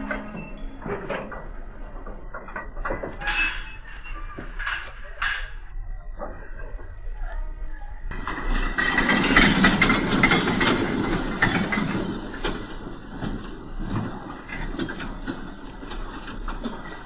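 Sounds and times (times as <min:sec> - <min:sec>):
model train wheels clicking: 0:08.1 - 0:17.0.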